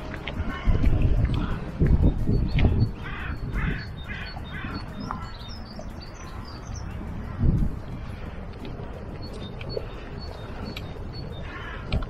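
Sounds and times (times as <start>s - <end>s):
small birds chirping: 0.4s - 12.0s.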